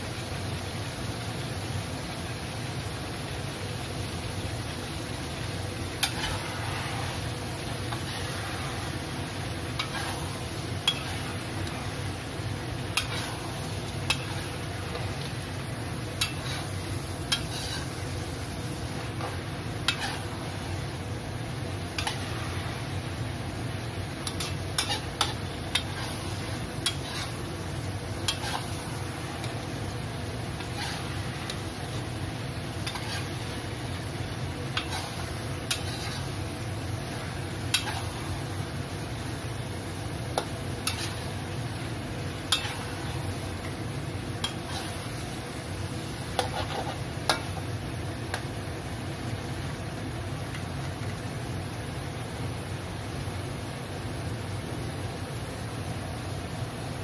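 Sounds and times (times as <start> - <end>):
food sizzling in a wok: 0.0 - 57.0
spatula clacking against wok: 14.1 - 14.4, 16.2 - 16.6, 19.9 - 20.2, 22.0 - 22.2, 24.2 - 26.1.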